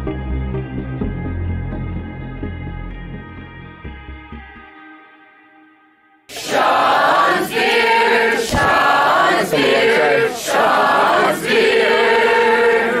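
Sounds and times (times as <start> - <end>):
group singing in unison: 6.3 - 13.0.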